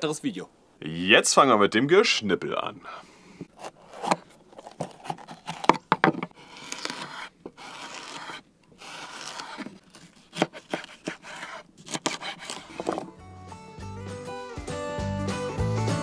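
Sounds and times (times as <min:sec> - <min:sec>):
knife slicing through pepper: 0:03.6 - 0:05.8, 0:06.4 - 0:13.0.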